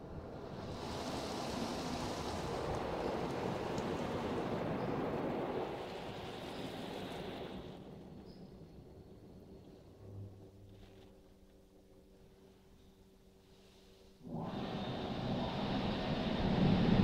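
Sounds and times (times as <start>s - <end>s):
water spray hissing on car: 0.6s - 4.4s.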